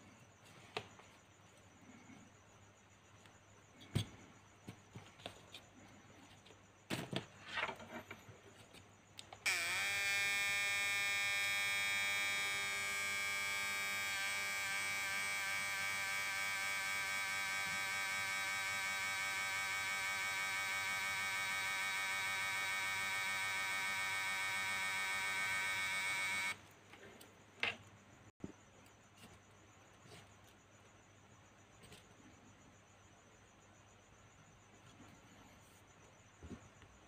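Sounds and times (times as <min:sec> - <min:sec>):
inverter buzzing loudly: 0:09.5 - 0:26.6.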